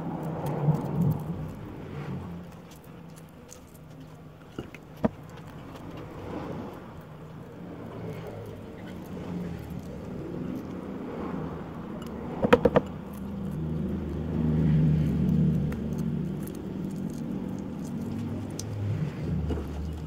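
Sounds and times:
vehicle engine hum: 0.0s - 20.0s.

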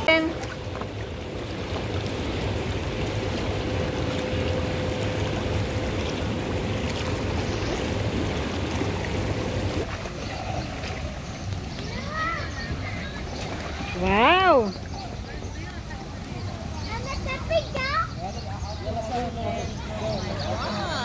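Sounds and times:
faint hum: 0.0s - 13.9s
pool water splashing: 0.0s - 21.0s.

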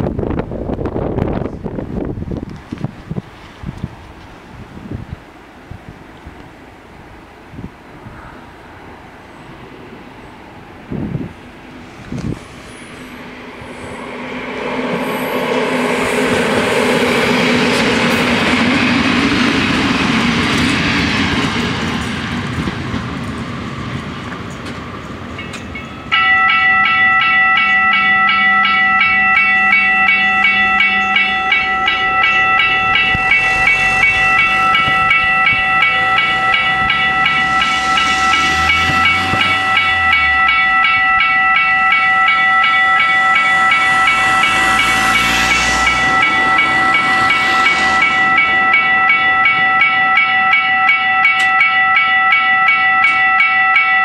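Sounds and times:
electric train running past: 0.0s - 54.0s
cars driving over crossing: 24.6s - 53.4s
level-crossing bells ringing: 25.4s - 54.0s.

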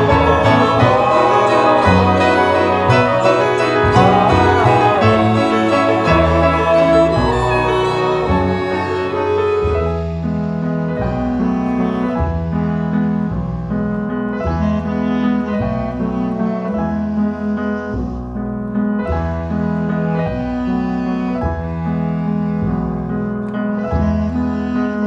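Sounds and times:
instrumental background music: 0.0s - 18.3s.

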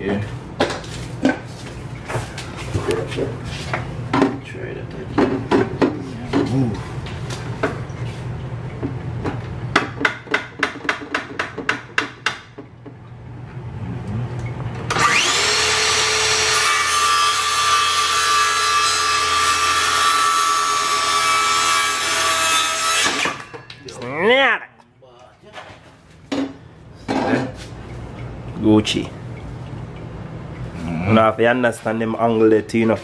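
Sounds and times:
circular saw whining: 14.9s - 23.5s.

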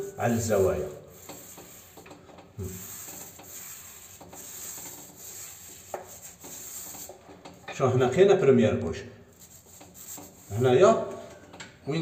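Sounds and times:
paint roller rubbing on ceiling: 0.0s - 7.5s, 9.2s - 11.0s.

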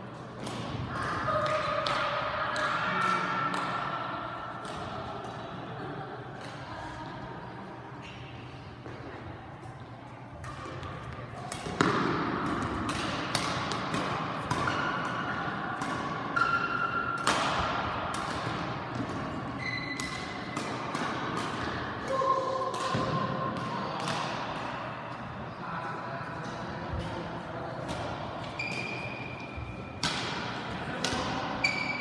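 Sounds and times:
rackets hitting shuttlecock: 0.4s - 5.5s, 10.3s - 24.9s, 27.8s - 32.0s
shoes squeaking on floor: 19.6s - 20.0s, 28.5s - 29.5s, 31.6s - 32.0s.

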